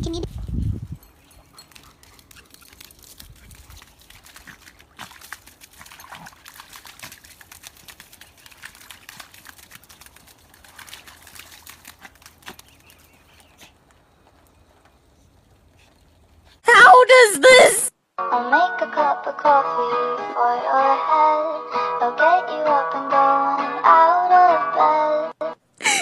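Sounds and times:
dog paws splashing through mud: 0.3s - 16.4s.

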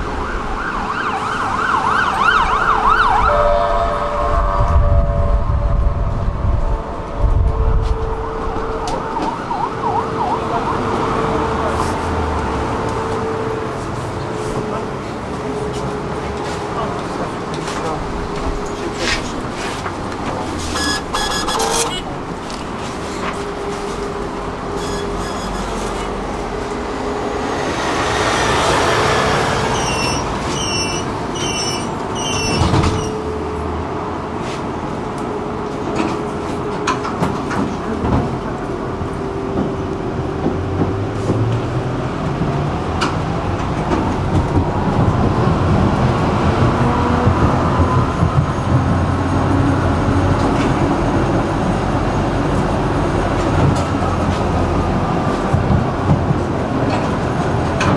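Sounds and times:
tram whine and rumble: 0.0s - 57.9s
warbling siren-like tone: 0.1s - 11.6s
short high-pitched tones: 20.8s - 22.0s.

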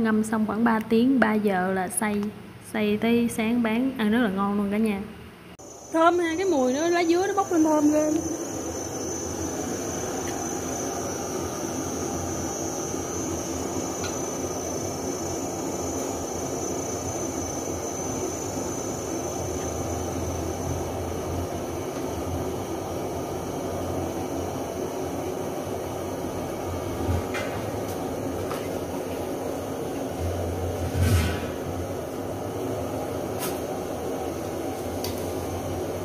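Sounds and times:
faint high whine: 5.5s - 28.3s.

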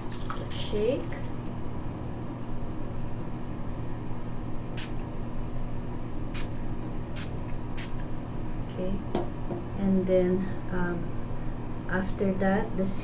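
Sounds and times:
steady low hum: 0.0s - 13.0s
mist spray bottle hissing: 4.8s - 5.0s, 6.4s - 6.6s.

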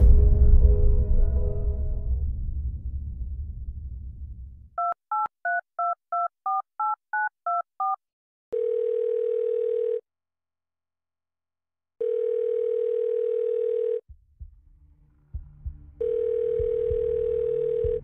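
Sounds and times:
low rumble: 0.0s - 4.8s, 14.1s - 18.0s
touch-tone keypad beeps: 4.8s - 8.0s
phone ringback tone: 8.6s - 10.0s, 12.0s - 14.0s, 16.0s - 18.0s.

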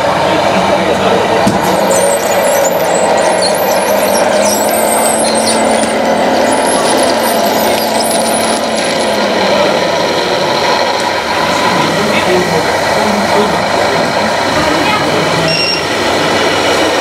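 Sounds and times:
hydraulic pump whining: 1.0s - 14.7s
background din: 1.4s - 11.3s
high wavering squeaks: 1.6s - 9.9s.

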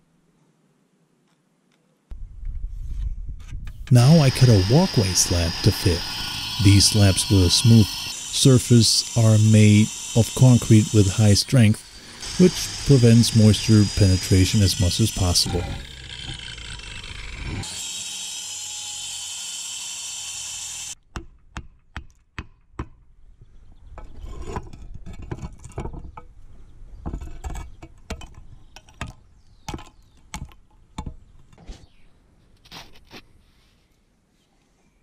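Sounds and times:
angle grinder cutting concrete: 4.0s - 21.0s.

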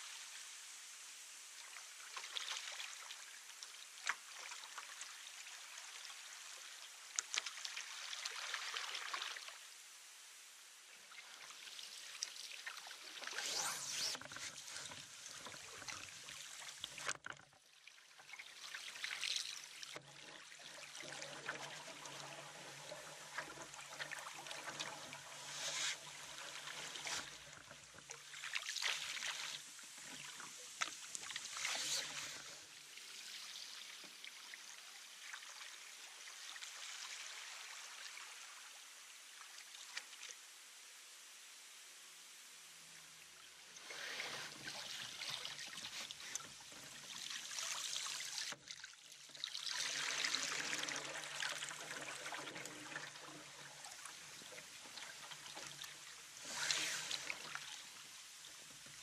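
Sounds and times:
paddle swirling water: 13.0s - 17.4s, 21.8s - 32.8s, 49.4s - 58.0s.

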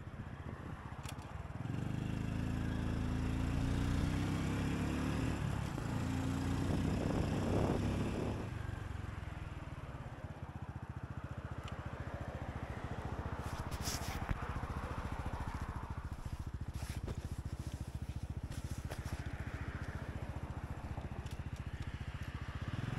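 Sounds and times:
motorbike engine idling: 5.5s - 22.9s
wind noise: 6.6s - 8.5s.

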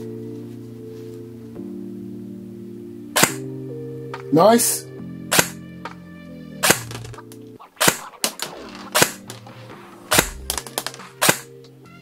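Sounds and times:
airsoft gun shots: 3.2s - 3.5s, 5.3s - 5.6s, 6.6s - 7.2s, 7.8s - 9.4s, 10.1s - 11.5s.

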